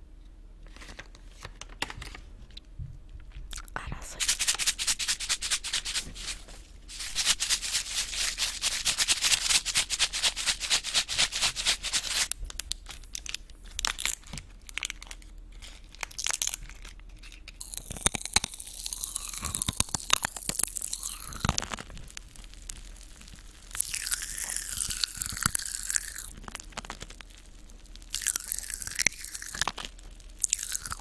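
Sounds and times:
plastic wrapper crinkling: 0.7 - 2.6, 3.9 - 31.0
mouth sounds of eating: 3.5 - 4.4, 17.6 - 26.7.

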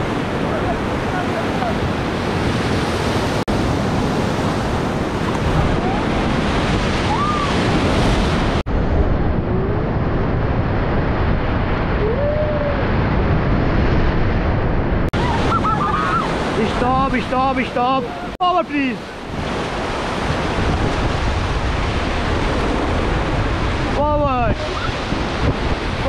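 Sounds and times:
river rapids rushing: 15.2 - 26.0.

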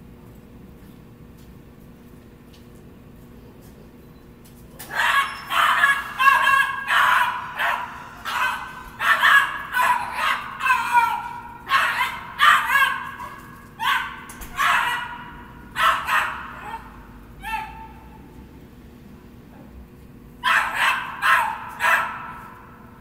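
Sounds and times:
dog yapping: 4.8 - 18.2, 20.4 - 22.7.

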